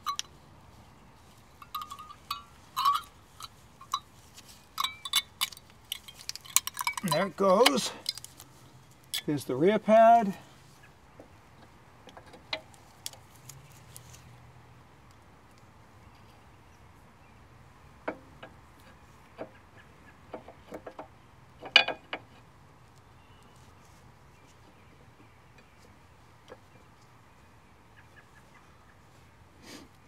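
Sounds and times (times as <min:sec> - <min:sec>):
sharp metal clicks and clacks: 0:04.8 - 0:08.3.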